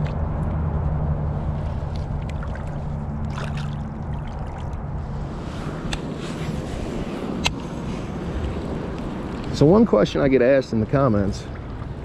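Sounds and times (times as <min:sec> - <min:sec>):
water splashing and trickling: 0:00.0 - 0:00.5, 0:01.5 - 0:05.4, 0:08.4 - 0:12.0
low steady rumble: 0:00.0 - 0:12.0.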